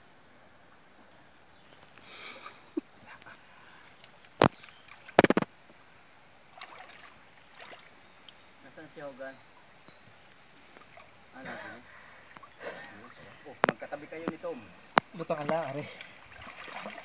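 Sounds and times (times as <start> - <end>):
high-pitched insect hiss: 0.0 - 17.0
sharp knocks: 5.2 - 5.5.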